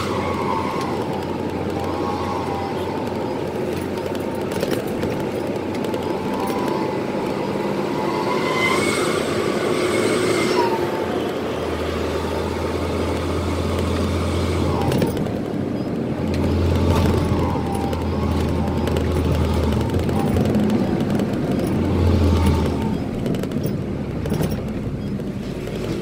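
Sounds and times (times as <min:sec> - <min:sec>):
diesel truck engine: 0:00.0 - 0:26.0
road noise: 0:00.0 - 0:26.0
turbo whistle: 0:07.9 - 0:11.0.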